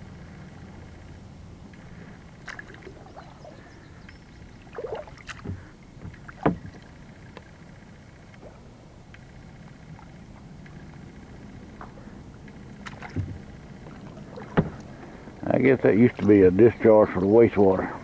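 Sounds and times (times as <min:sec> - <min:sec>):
paddle splashes and knocks: 0:02.4 - 0:03.7, 0:04.6 - 0:07.4, 0:12.8 - 0:15.2.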